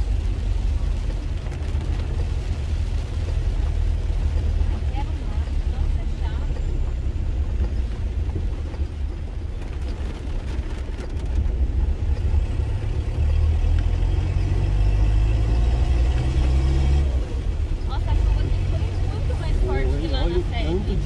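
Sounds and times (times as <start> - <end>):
engine and tyre rumble: 0.0 - 21.0.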